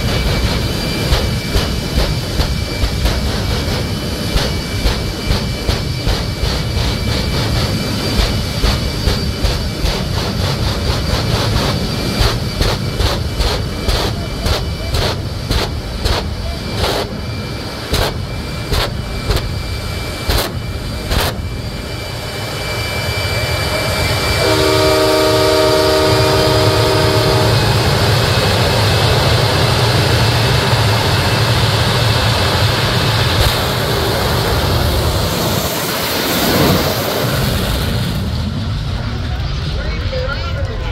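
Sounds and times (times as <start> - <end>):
jet engine roaring: 0.0 - 40.9
air horn: 24.4 - 27.8.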